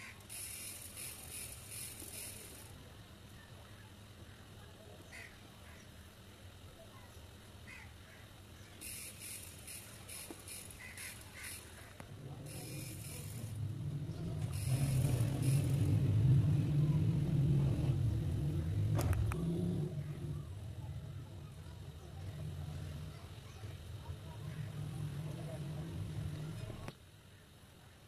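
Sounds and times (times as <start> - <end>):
low rumble: 12.1 - 26.9.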